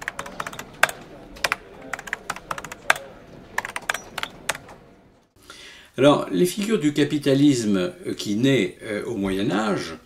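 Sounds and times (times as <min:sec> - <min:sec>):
keyboard typing clicks: 0:00.0 - 0:04.8.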